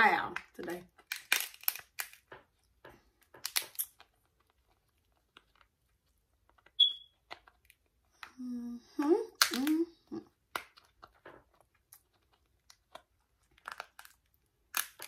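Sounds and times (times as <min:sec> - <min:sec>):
crab shell cracking: 0:00.9 - 0:02.4, 0:03.2 - 0:05.8, 0:10.4 - 0:15.0
short high-pitched chirp: 0:06.8 - 0:07.1.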